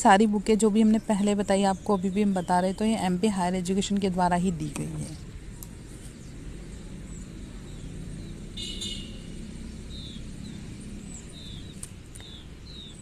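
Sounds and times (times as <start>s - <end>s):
bird trill: 7.1s - 13.0s.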